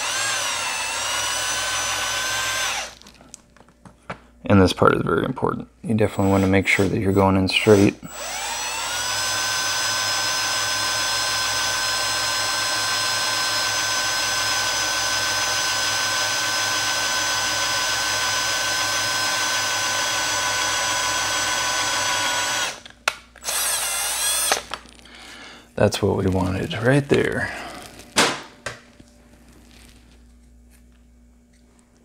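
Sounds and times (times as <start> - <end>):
small electric drill running: 0.0 - 3.0, 7.6 - 24.8.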